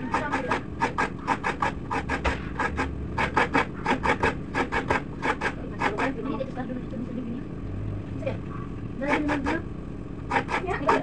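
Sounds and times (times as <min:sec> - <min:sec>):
coconut grating rasping scrape: 0:00.0 - 0:06.6, 0:09.0 - 0:11.0.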